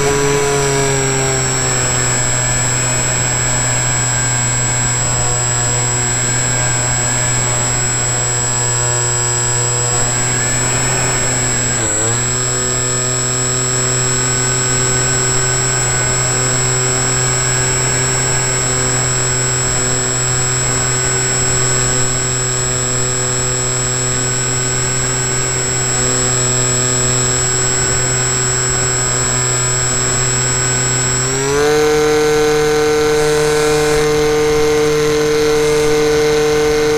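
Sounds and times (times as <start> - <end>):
model plane motor whining: 0.0 - 36.9.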